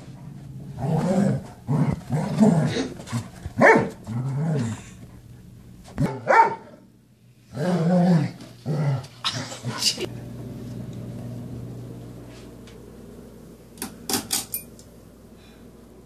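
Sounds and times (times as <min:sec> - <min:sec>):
dog growling: 0:00.8 - 0:03.2, 0:04.1 - 0:05.0, 0:07.5 - 0:10.0
dog barking: 0:03.6 - 0:03.9, 0:06.0 - 0:06.8.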